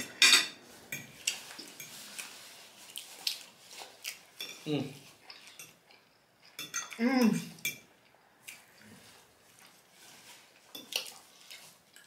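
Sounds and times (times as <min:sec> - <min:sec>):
fork clinking on a ceramic plate: 0:06.5 - 0:07.0.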